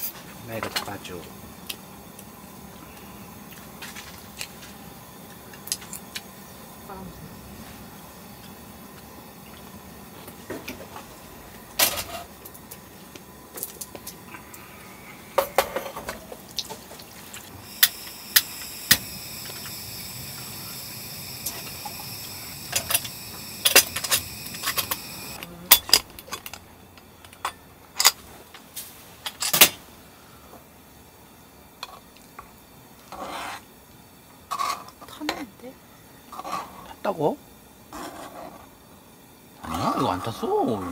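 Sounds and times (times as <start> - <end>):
steady high hiss: 0.0 - 40.9.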